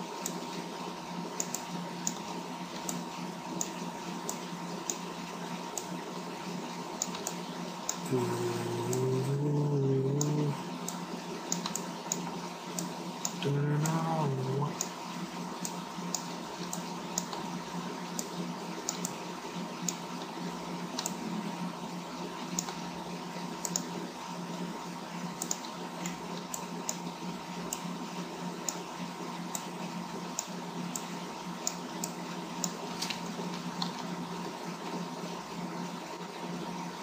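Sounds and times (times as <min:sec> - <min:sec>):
low hum and hiss: 0:00.0 - 0:37.0
mouse and keyboard clicks: 0:01.4 - 0:02.2, 0:07.0 - 0:08.0, 0:11.5 - 0:14.0, 0:18.1 - 0:19.2, 0:21.0 - 0:21.2, 0:22.5 - 0:22.8, 0:23.6 - 0:23.9, 0:25.4 - 0:27.0.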